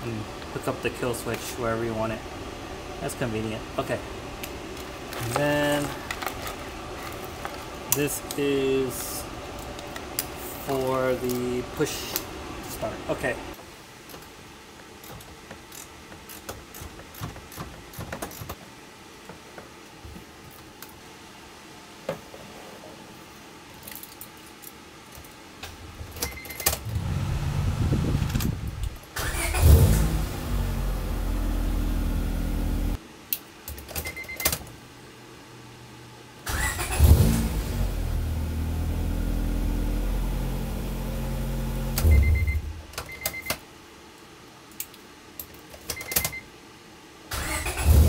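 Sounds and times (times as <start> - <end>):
small parts clicking and rattling: 23.8 - 25.4
car engine cranking and revving: 26.8 - 33.0, 36.5 - 42.7, 47.3 - 48.0.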